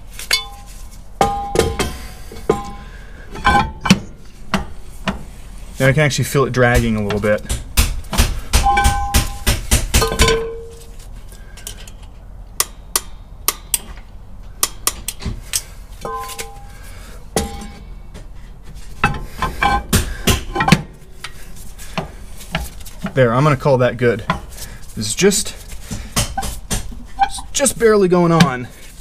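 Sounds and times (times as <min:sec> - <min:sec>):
brake drum clanking and scraping: 0:08.6 - 0:12.2, 0:15.0 - 0:28.6.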